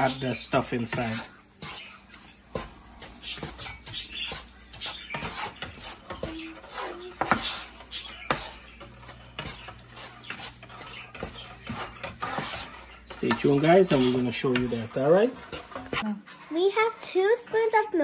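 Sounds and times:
wooden spoon scraping a pan: 0.0 - 18.0
spoon knocking against pan: 2.5 - 14.8.

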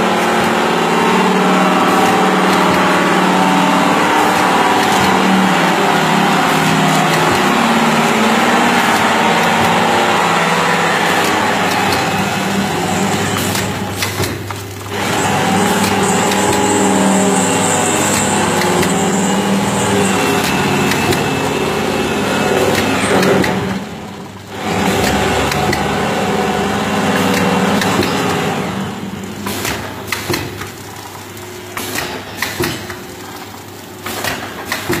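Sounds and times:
packing machine humming: 0.0 - 35.0
machine clicks and knocks: 1.8 - 3.1, 4.0 - 17.2, 20.2 - 21.4, 22.5 - 23.8, 24.6 - 26.0, 27.1 - 28.4, 29.4 - 35.0.

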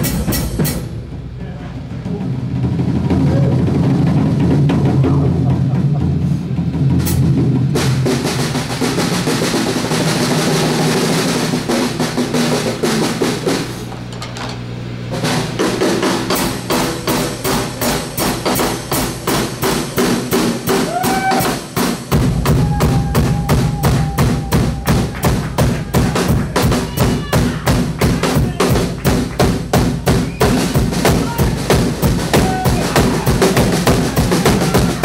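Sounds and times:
drum kit beat: 0.0 - 35.0
live rock band: 15.1 - 35.0.

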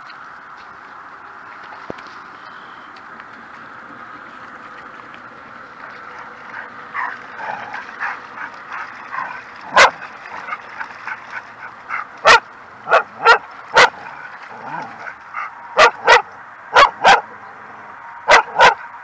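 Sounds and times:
dog barking: 9.7 - 10.0, 12.2 - 14.0, 15.8 - 17.3, 18.3 - 18.9.

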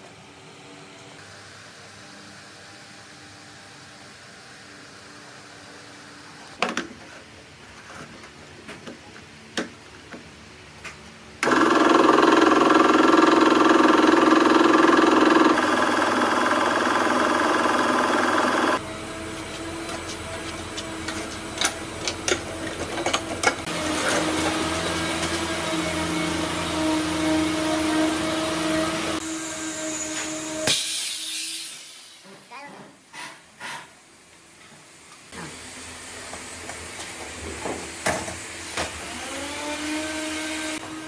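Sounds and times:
air compressor running: 11.4 - 32.2
steady hum: 11.9 - 18.8.

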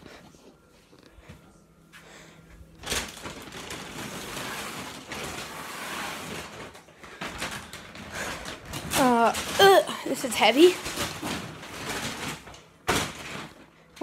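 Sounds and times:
plastic bag crinkling: 2.8 - 14.0.

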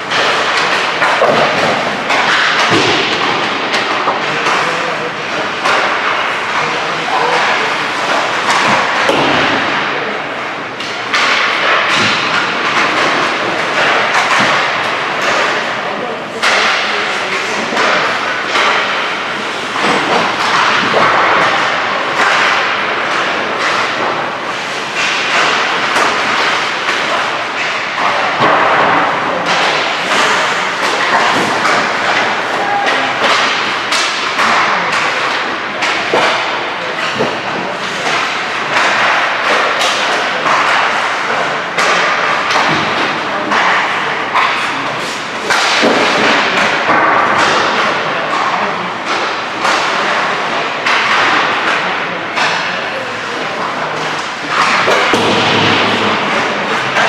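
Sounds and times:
sticks and pucks knocking: 0.0 - 57.0.

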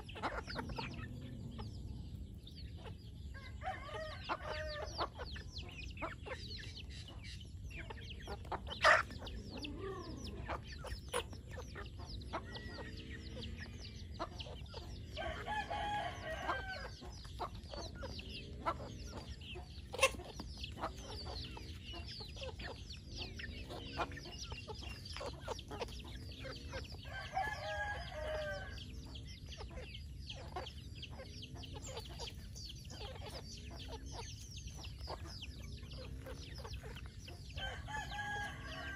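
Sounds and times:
chickens clucking: 0.0 - 38.9
high chick peeps: 0.0 - 38.9
rooster crowing: 3.6 - 5.0, 15.2 - 17.0, 27.0 - 28.9, 37.6 - 38.9.

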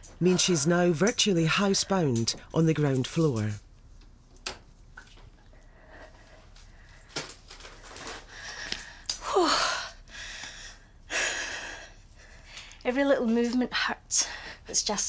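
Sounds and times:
woman breathing heavily: 5.6 - 12.8, 14.1 - 14.7.

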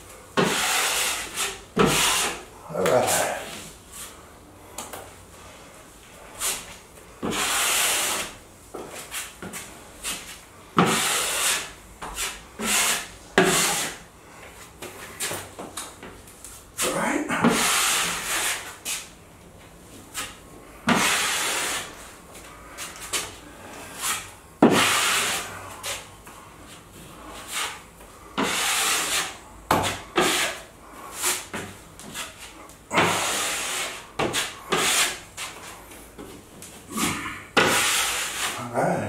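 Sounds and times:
drywall knife scraping compound: 0.4 - 3.7, 6.2 - 8.4, 9.0 - 14.1, 16.8 - 19.1, 20.2 - 22.0, 22.8 - 26.1, 27.1 - 35.9, 36.9 - 39.0.

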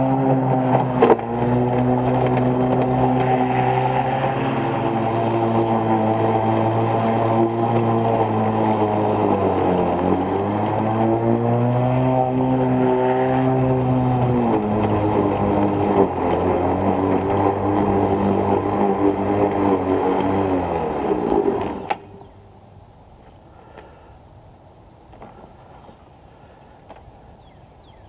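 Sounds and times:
electric lawn mower humming: 0.0 - 22.4.

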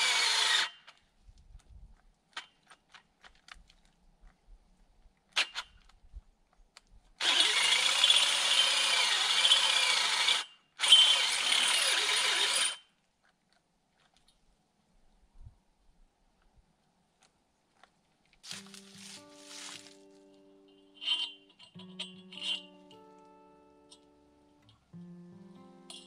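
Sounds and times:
power drill running: 0.0 - 0.7, 7.2 - 12.8.

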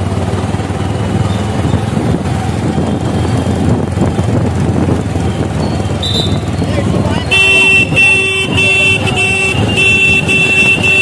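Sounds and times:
motorcycle engine running: 0.0 - 11.0
wind buffeting microphone: 1.0 - 11.0.

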